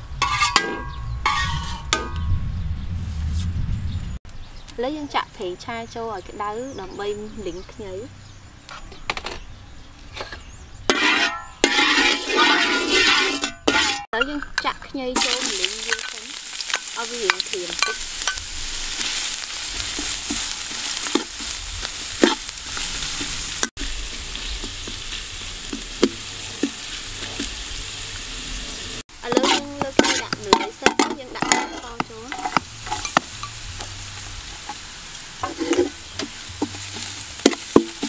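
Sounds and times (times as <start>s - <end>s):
metal spatula scraping wok: 0.0s - 2.3s, 10.1s - 38.0s
vegetables sizzling in hot oil: 15.2s - 38.0s.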